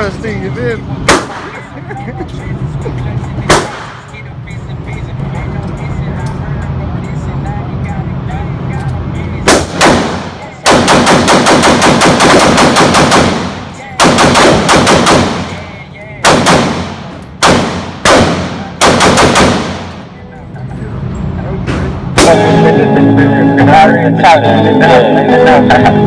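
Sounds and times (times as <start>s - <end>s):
echoing gunshots indoors: 1.1s - 1.7s, 3.5s - 4.1s, 9.4s - 20.1s.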